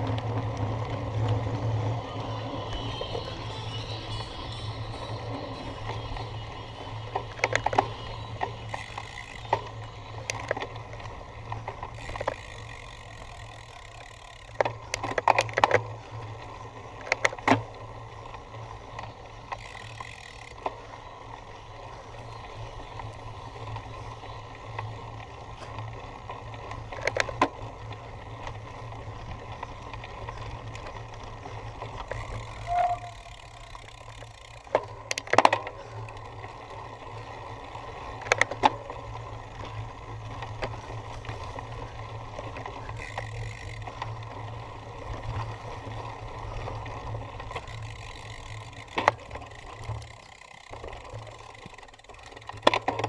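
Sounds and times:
bicycle rumble over rough ground: 0:00.0 - 0:53.0
bike clattering over bumps: 0:07.0 - 0:17.7, 0:38.1 - 0:53.0.

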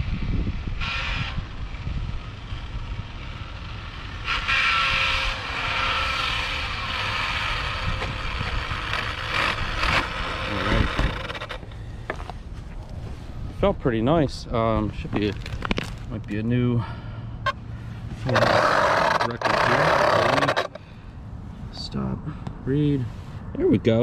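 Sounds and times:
rc car electric motor whine: 0:00.0 - 0:11.7, 0:18.2 - 0:20.8.

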